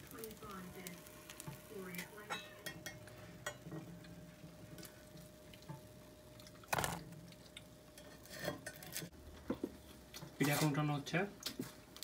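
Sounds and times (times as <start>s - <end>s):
batter sizzling with small crackles: 0.0s - 12.0s
knife scraping pan: 8.0s - 9.1s.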